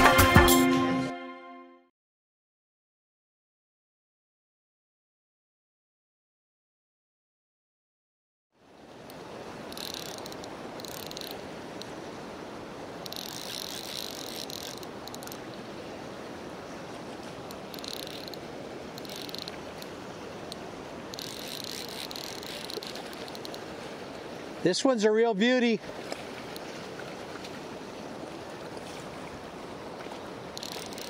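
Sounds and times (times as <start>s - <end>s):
river current rushing: 8.6s - 31.0s
fly reel ratchet clicking: 9.1s - 11.9s, 13.0s - 15.4s, 17.5s - 18.4s, 19.0s - 19.9s, 20.5s - 23.6s, 30.6s - 31.0s.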